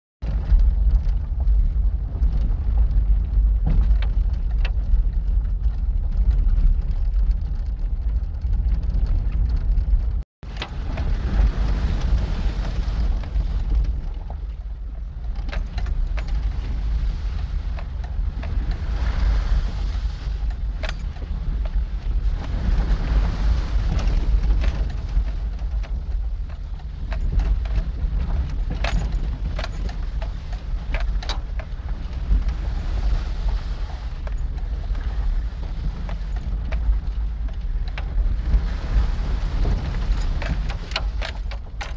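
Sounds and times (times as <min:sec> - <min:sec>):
light rattles and clicks: 0:00.2 - 0:41.9
vehicle engine and tyre rumble: 0:00.2 - 0:41.9.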